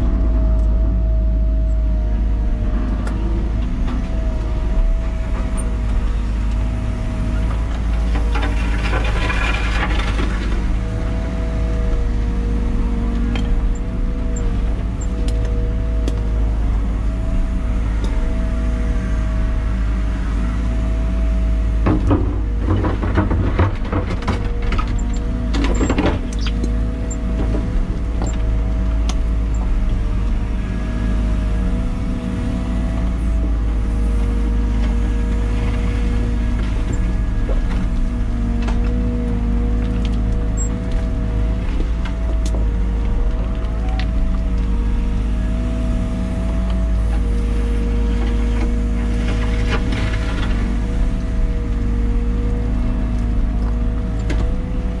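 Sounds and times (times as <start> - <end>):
diesel engine rumbling: 0.0 - 55.0
bucket scraping dirt and stones: 8.2 - 10.7.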